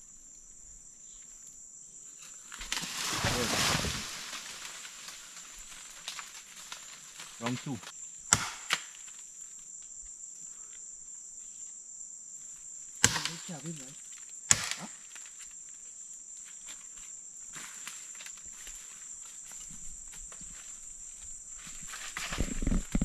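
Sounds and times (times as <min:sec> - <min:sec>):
insects droning: 0:00.0 - 0:23.0
chopping strikes on wood: 0:08.3 - 0:09.0, 0:13.0 - 0:13.5, 0:14.5 - 0:15.0.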